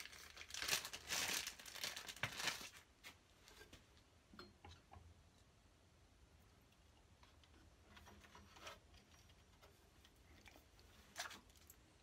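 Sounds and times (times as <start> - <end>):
plastic bag crinkling: 0.0 - 2.9.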